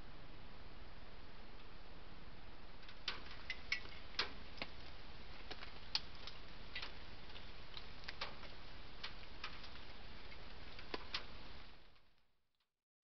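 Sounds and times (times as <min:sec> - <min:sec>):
microphone hiss: 0:00.0 - 0:12.1
sharp ticks and clicks: 0:02.8 - 0:12.1.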